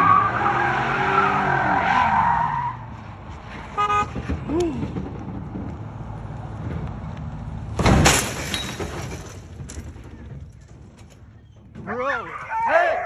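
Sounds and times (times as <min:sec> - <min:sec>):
truck engine rumble: 0:00.0 - 0:12.4
loud crash: 0:07.8 - 0:09.6.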